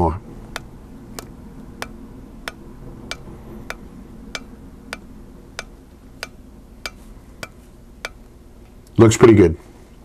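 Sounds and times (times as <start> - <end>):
low steady hum: 0.0 - 10.0
hammer striking anvil: 1.8 - 8.2.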